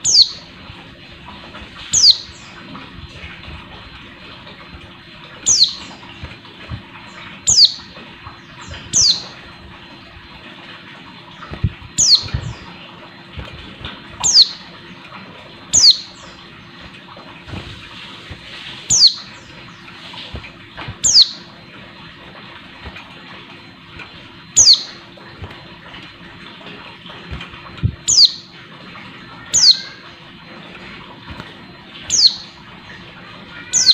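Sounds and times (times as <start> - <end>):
bird high chirps: 0.0 - 0.5, 1.9 - 2.6, 5.4 - 6.0, 7.4 - 9.4, 12.0 - 12.7, 14.2 - 14.7, 15.7 - 16.4, 18.9 - 19.6, 21.0 - 21.5, 24.6 - 25.0, 28.0 - 28.5, 29.4 - 30.0, 32.1 - 32.6, 33.6 - 33.9.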